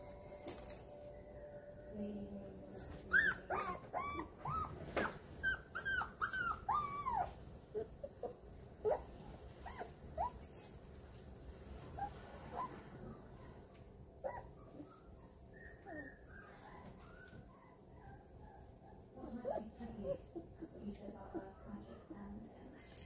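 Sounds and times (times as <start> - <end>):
puppies whining and yipping: 2.7 - 10.6, 14.2 - 22.1.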